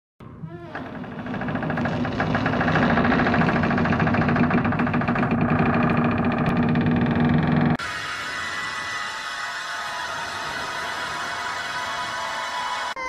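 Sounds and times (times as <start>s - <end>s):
buzzing rattling drone: 0.2s - 12.9s
wavering tone: 7.3s - 13.0s.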